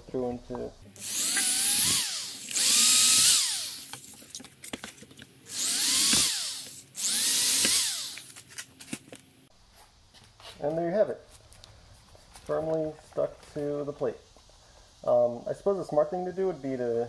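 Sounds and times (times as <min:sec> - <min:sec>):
power drill boring through board: 0:01.0 - 0:03.9, 0:05.5 - 0:08.3.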